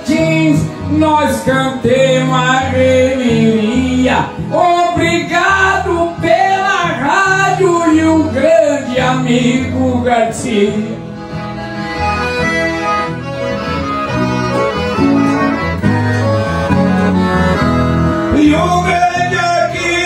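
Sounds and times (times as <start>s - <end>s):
man singing: 0.0s - 11.0s, 18.2s - 20.0s
accordion: 0.0s - 20.0s
acoustic guitar: 0.0s - 20.0s.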